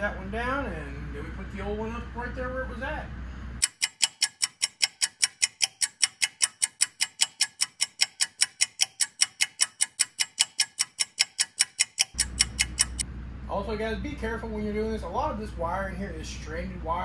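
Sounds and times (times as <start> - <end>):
clock ticking: 3.6 - 13.0.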